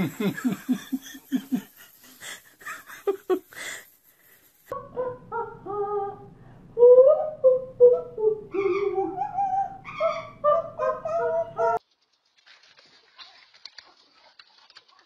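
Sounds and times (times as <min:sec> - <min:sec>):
parrot singing: 0:07.1 - 0:11.8.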